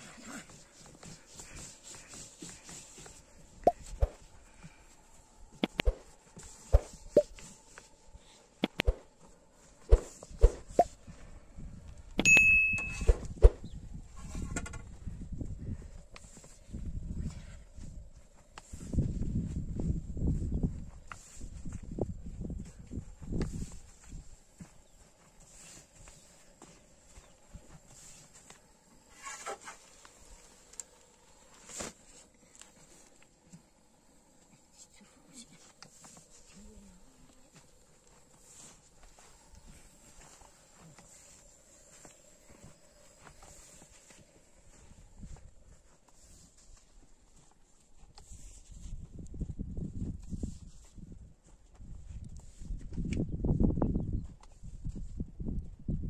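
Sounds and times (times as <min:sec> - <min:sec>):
brushing sounds: 0:00.0 - 0:04.4, 0:05.6 - 0:11.0, 0:25.2 - 0:48.9
steady ringing tone: 0:12.2 - 0:13.1.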